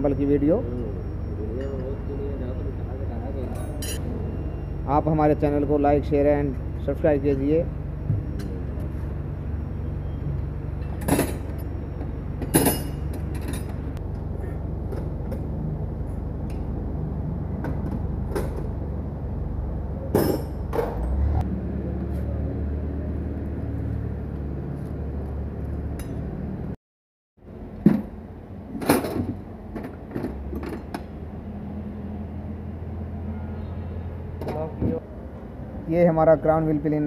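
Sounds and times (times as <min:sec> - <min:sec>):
metal tools clinking: 0:03.4 - 0:04.0.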